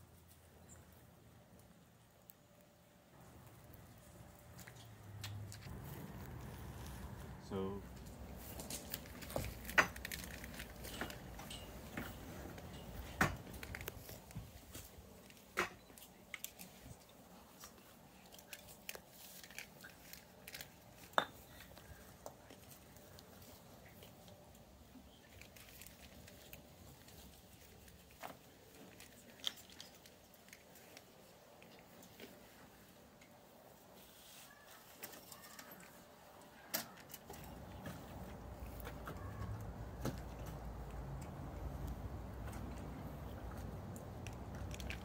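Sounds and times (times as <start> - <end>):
low outdoor background: 0.0 - 45.0
hands handling objects: 1.5 - 45.0.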